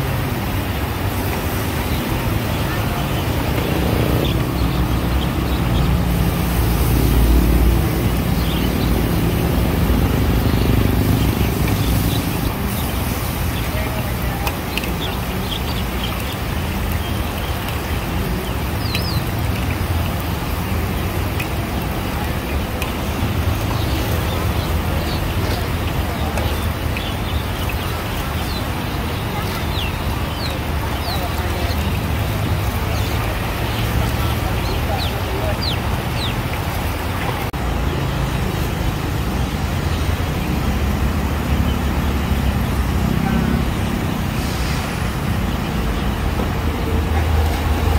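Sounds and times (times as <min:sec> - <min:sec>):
potatoes deep-frying in oil: 0:00.0 - 0:37.0
hubbub of busy market: 0:00.0 - 0:47.9.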